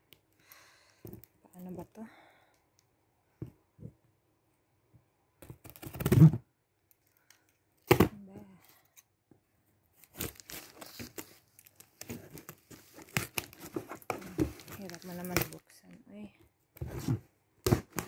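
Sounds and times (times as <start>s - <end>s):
cardboard ripping: 5.7s - 6.4s, 10.0s - 11.3s, 12.0s - 15.6s
packing tape crinkling: 10.0s - 15.6s.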